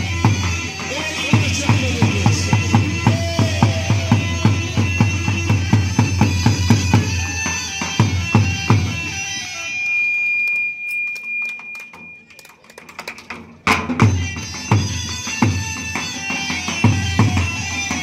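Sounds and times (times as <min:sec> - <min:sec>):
drum beating quick rhythm: 0:00.0 - 0:09.1
reedy pipe melody: 0:00.0 - 0:12.1.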